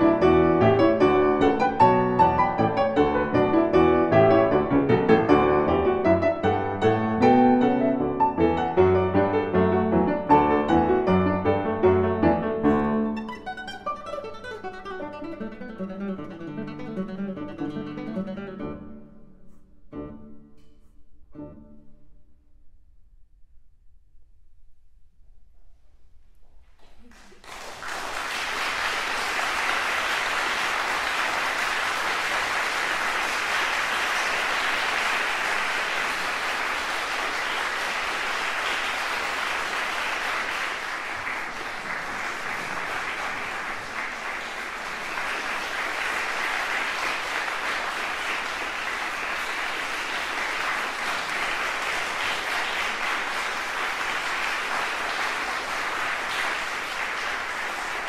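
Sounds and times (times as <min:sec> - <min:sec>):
audience applauding: 0:00.0 - 0:14.6, 0:26.8 - 0:58.0.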